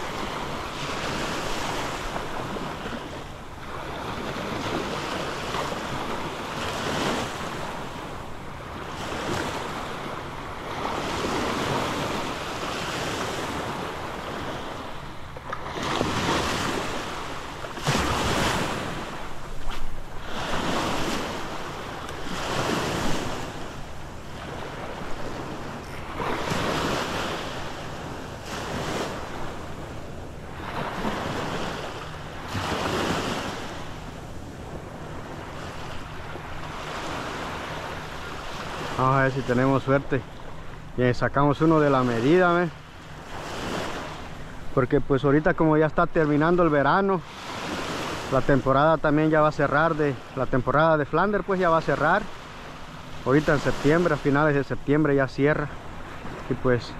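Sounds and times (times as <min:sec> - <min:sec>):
wind rumbling on microphone: 0:00.0 - 0:39.5
small waves breaking on sand: 0:00.0 - 0:56.9.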